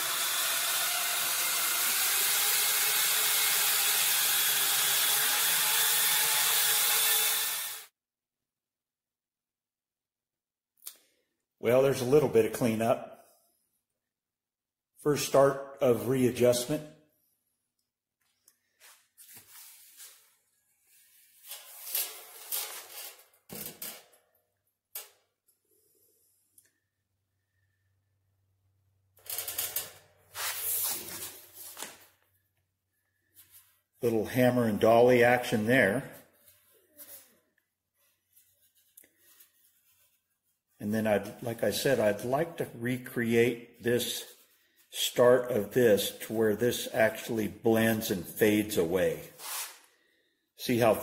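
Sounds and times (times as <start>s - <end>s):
electric drill boring into metal: 0.0s - 7.9s.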